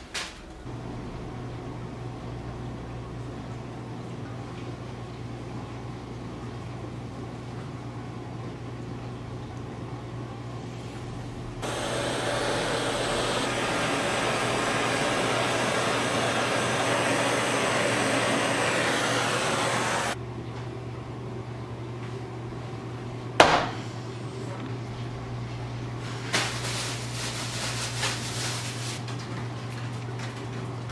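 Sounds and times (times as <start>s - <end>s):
blowtorch hissing: 11.6s - 20.2s
sharp knock: 23.4s - 23.8s.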